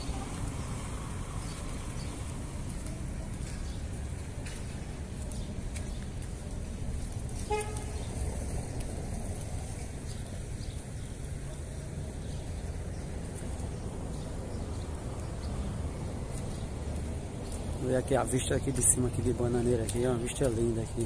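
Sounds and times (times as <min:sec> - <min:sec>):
street ambience rumble: 0:00.0 - 0:21.0
vehicle horn toot: 0:07.4 - 0:08.0.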